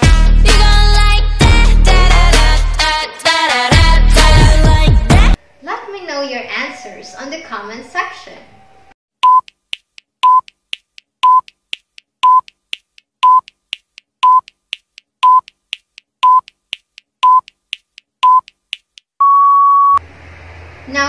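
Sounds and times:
countdown timer beeping ticks: 0:09.2 - 0:09.6, 0:10.2 - 0:10.6, 0:11.2 - 0:11.6, 0:12.2 - 0:12.6, 0:13.2 - 0:13.6, 0:14.2 - 0:14.6, 0:15.2 - 0:15.6, 0:16.2 - 0:16.6, 0:17.2 - 0:17.6, 0:18.2 - 0:18.6.

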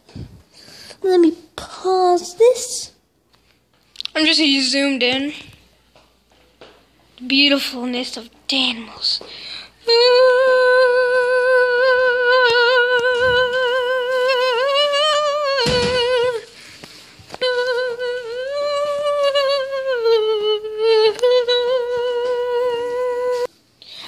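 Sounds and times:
girl humming: 0:09.9 - 0:16.5, 0:17.4 - 0:23.5.

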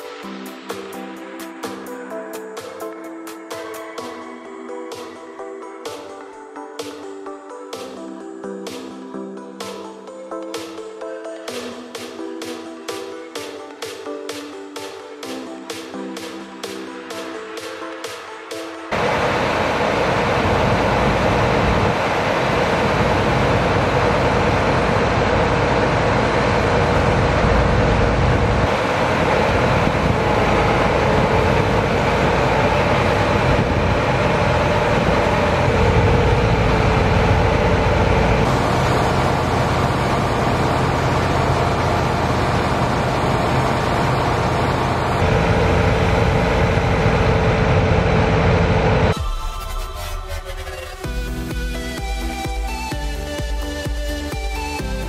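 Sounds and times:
tractors and auger machinery drone: 0:18.9 - 0:49.2.

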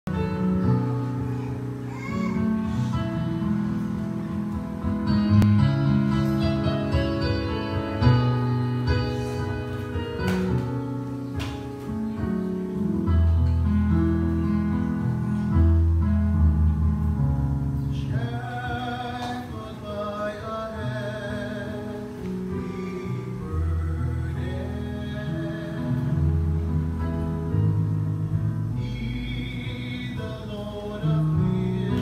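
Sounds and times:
guitar accompaniment: 0:00.1 - 0:32.0.

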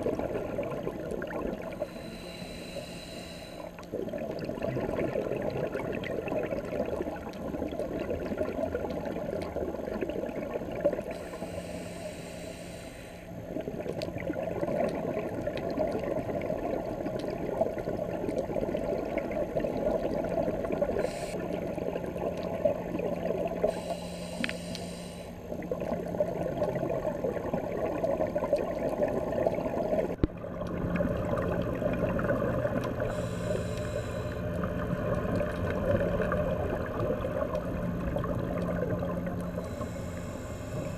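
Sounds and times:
exhaled bubbles gurgling: 0:00.0 - 0:40.9
regulator inhalation hiss: 0:01.7 - 0:03.8, 0:11.2 - 0:13.3, 0:21.0 - 0:21.4, 0:23.7 - 0:25.4, 0:33.1 - 0:34.4, 0:39.6 - 0:40.9.

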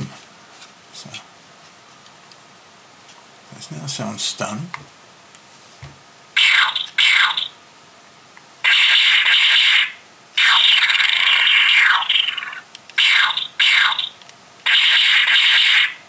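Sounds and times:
electronic hissing zaps: 0:08.6 - 0:16.0.

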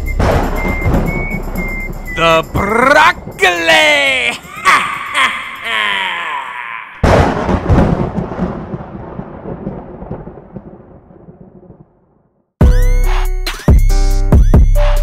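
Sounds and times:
deep boom rumbling: 0:00.0 - 0:03.4, 0:07.0 - 0:12.0
electronic music with heavy beat: 0:12.6 - 0:15.0.

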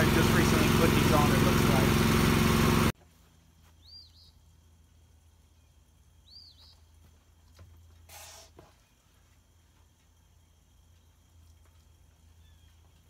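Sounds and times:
short hiss: 0:08.1 - 0:08.6.

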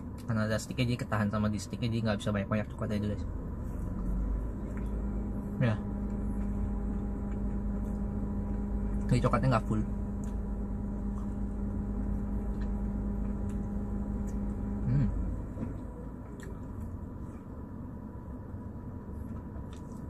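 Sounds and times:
machine hum with low rumble: 0:00.0 - 0:20.0
biting and eating ice cream bar: 0:19.2 - 0:20.0.

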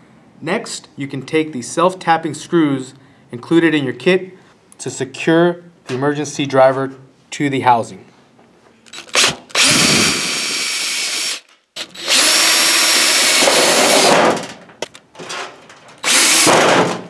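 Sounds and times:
power drill whining: 0:08.9 - 0:14.2, 0:16.0 - 0:16.5.

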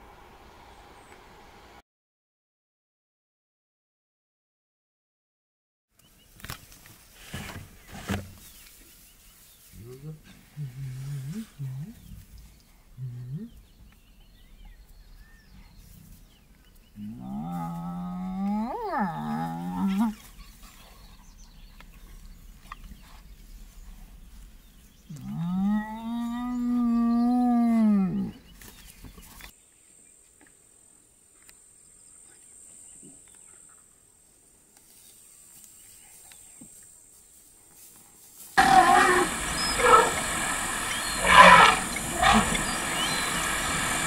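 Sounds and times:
hyenas calling: 0:38.6 - 0:44.0.

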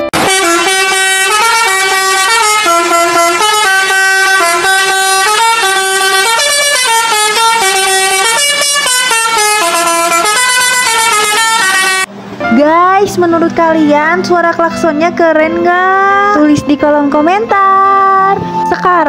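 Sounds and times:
bus musical horn playing a tune: 0:00.0 - 0:12.1.

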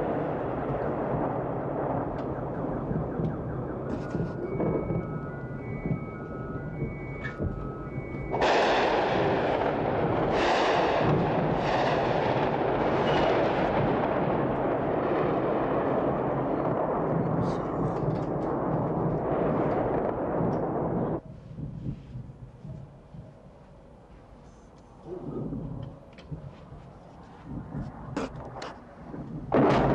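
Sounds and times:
rumble of explosions: 0:00.0 - 0:23.6, 0:25.0 - 0:29.9
gunfire: 0:08.3 - 0:21.2, 0:29.5 - 0:29.9.

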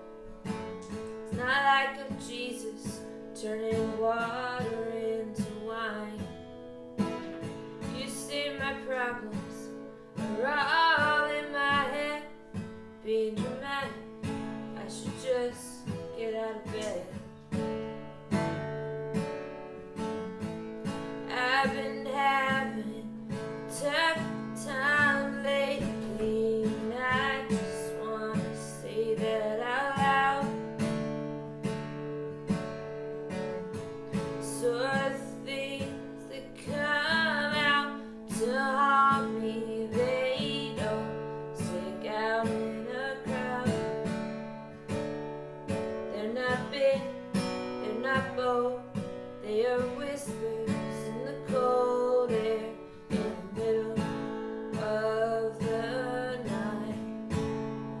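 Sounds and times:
acoustic guitar strumming: 0:00.0 - 0:58.0
woman singing: 0:00.4 - 0:17.5, 0:20.9 - 0:31.1, 0:33.3 - 0:45.0, 0:45.7 - 0:58.0.

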